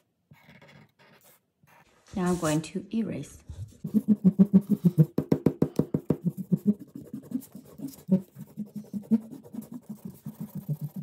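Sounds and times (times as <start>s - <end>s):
eraser rubbing on paper: 3.7s - 5.1s, 6.1s - 11.0s.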